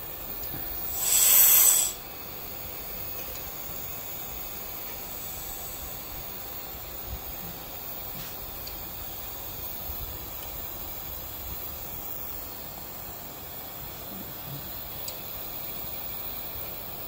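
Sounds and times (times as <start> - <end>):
compressed air hissing: 0.0 - 10.0.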